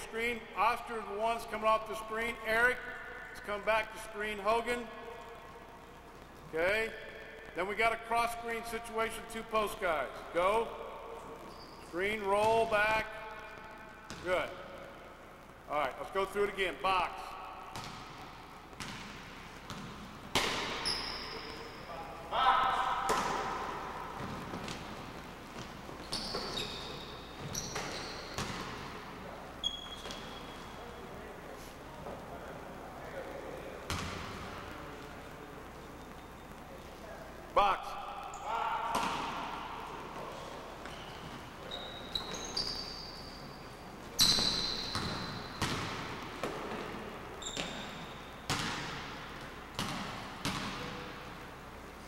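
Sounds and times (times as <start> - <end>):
sneaker squeaks: 11.4 - 12.0, 18.8 - 21.9, 25.6 - 29.0, 29.6 - 31.0, 40.6 - 51.1.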